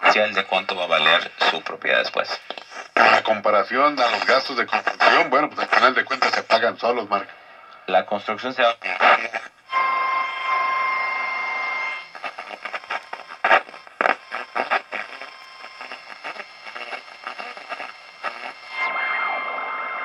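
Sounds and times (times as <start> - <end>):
radio crackling static: 0.0 - 20.0
radio whistle tone: 9.0 - 20.0.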